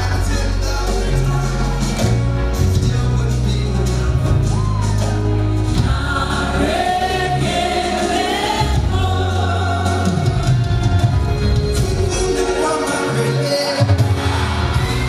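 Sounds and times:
instrumental backing with bass: 0.0s - 15.0s
woman singing lead: 3.4s - 15.0s
choir backing voices: 3.8s - 15.0s.

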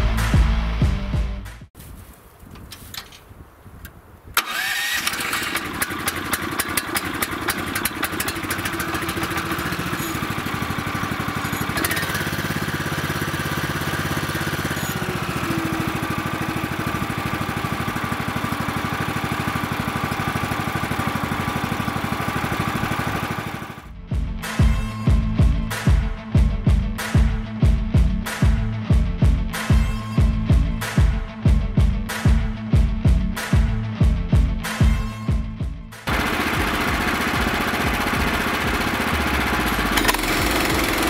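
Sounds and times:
electric starter cranking: 4.4s - 23.9s, 36.1s - 41.0s
engine running steadily: 4.4s - 24.0s, 36.1s - 41.0s.

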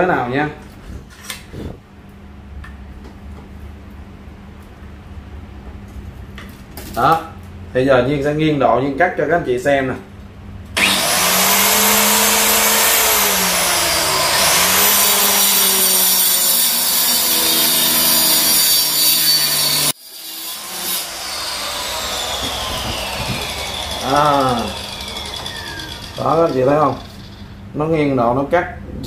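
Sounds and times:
blade cutting through wood: 10.8s - 27.3s
tile and wood cutter whining: 10.8s - 27.5s.

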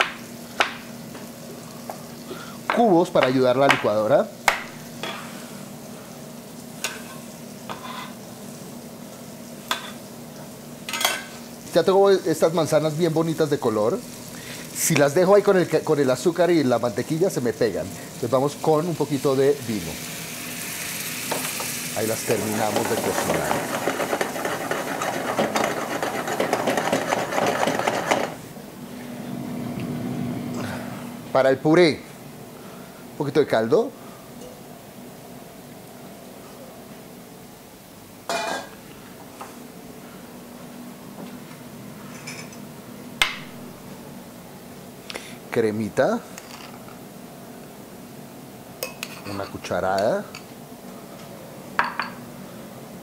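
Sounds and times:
apples sizzling in a pan: 0.0s - 28.6s.

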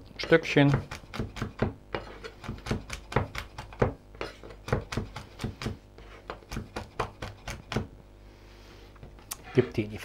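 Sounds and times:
knife chopping on wooden board: 0.2s - 7.9s.

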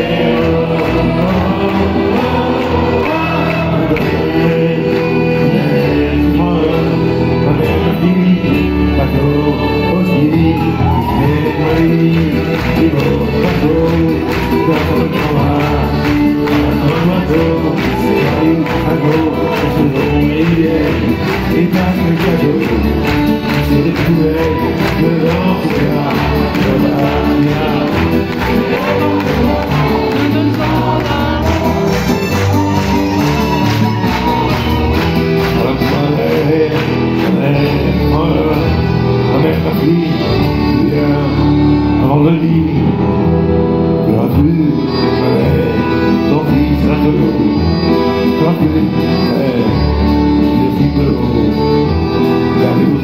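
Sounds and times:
accordion: 0.0s - 53.0s
acoustic guitar: 0.0s - 53.0s
piano: 0.0s - 53.0s.

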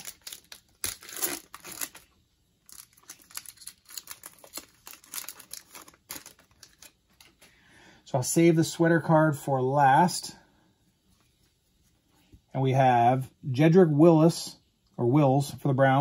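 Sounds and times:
wrapper crinkling and tearing: 0.0s - 7.3s.

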